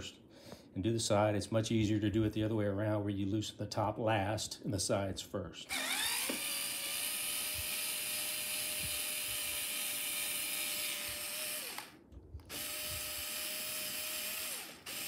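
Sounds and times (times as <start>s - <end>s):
cordless screwdriver whirring: 5.7s - 15.0s.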